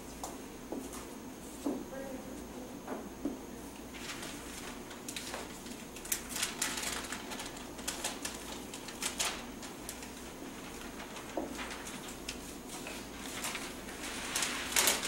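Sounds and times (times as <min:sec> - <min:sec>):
paper rustling: 0:03.9 - 0:15.0.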